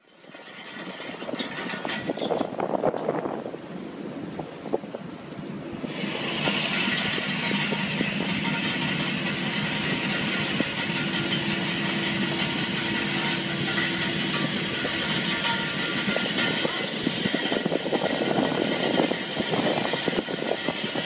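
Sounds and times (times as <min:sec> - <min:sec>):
net-hauling machinery hissing: 0:05.7 - 0:21.0.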